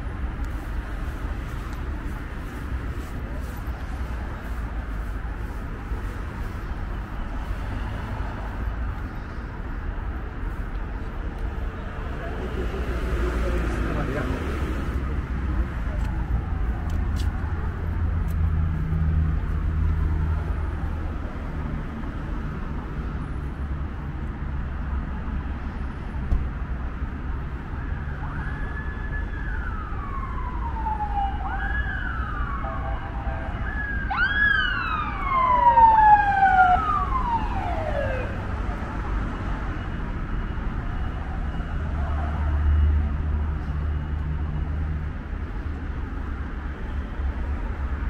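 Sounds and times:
street traffic rumble: 0.0 - 48.0
emergency vehicle siren wailing: 27.1 - 48.0.

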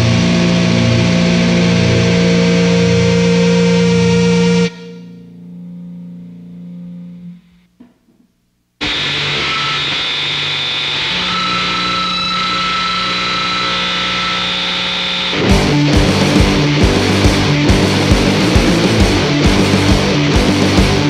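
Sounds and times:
distorted electric guitar chord: 0.0 - 8.0, 8.8 - 21.0
wall of distorted metal noise: 6.8 - 21.0
drums and full band: 15.4 - 21.0.

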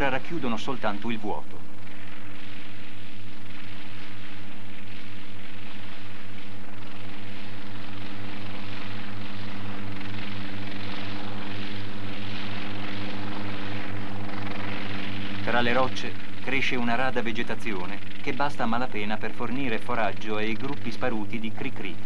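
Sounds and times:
helicopter rotor and engine: 0.0 - 22.0.

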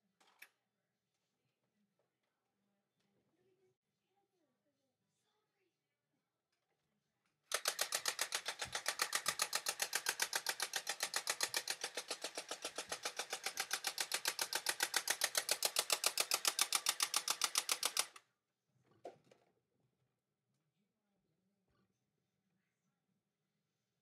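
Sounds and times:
fast rattle of sharp clicks: 7.5 - 18.2.

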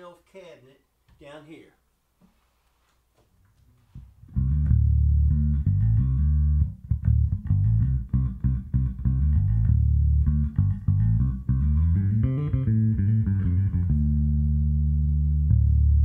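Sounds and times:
electric bass line: 4.2 - 16.0.

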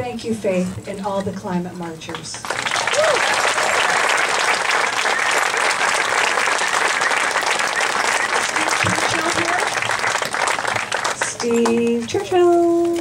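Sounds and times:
crowd applauding: 2.3 - 12.0.

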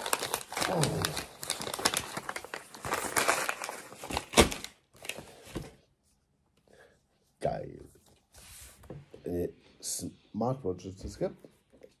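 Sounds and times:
wrapping paper tearing and crumpling: 0.0 - 5.2.

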